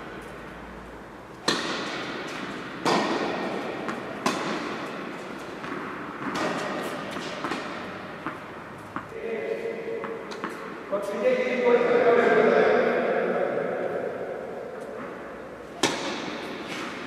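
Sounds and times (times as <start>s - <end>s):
tennis ball hits echoing: 1.4s - 10.9s, 14.8s - 17.0s.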